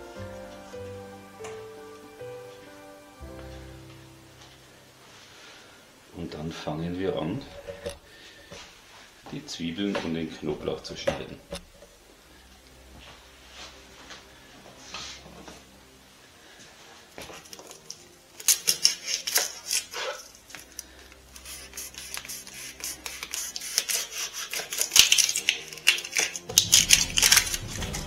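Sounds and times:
dry onion skin crackling: 0:17.4 - 0:28.0.

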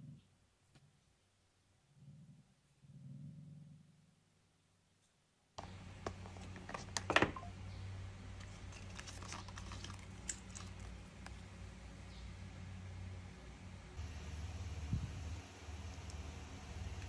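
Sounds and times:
low steady hum: 0:05.6 - 0:17.0
cardboard packaging rustling: 0:08.3 - 0:11.4.

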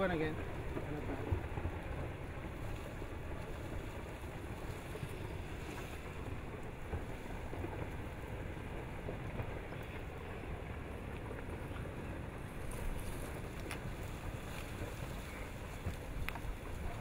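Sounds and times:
rockfall rushing rumble: 0:00.0 - 0:17.0
wind on microphone: 0:00.0 - 0:17.0.

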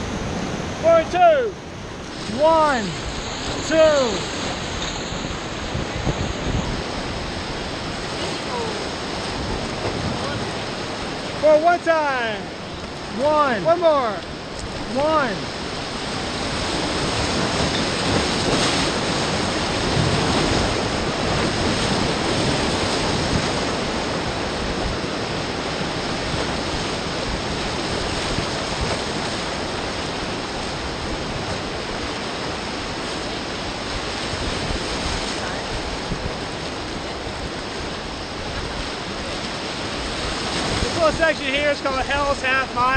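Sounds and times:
whitewater rapids rushing: 0:00.0 - 0:42.9.

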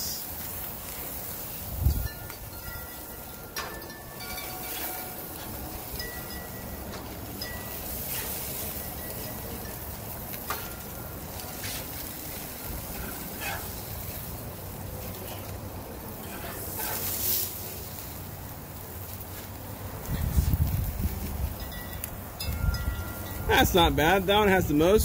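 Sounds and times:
burgers sizzling on a grill: 0:00.0 - 0:25.0
metal spatula scraping grill grates: 0:00.1 - 0:18.2
wind rumble on microphone: 0:01.6 - 0:03.0, 0:19.8 - 0:23.6.

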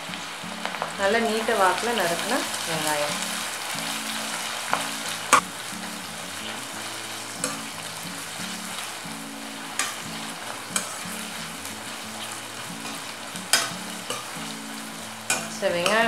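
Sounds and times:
onions sizzling in hot oil: 0:00.0 - 0:16.0
spatula clacking against pot: 0:09.8 - 0:10.0, 0:10.7 - 0:11.0, 0:12.8 - 0:14.6, 0:15.2 - 0:16.0.

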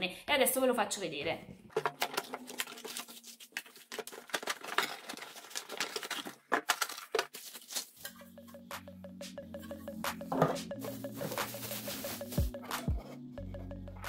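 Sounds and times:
packaging rustling and crinkling: 0:01.7 - 0:08.1, 0:10.8 - 0:12.6
background music: 0:07.9 - 0:14.0.

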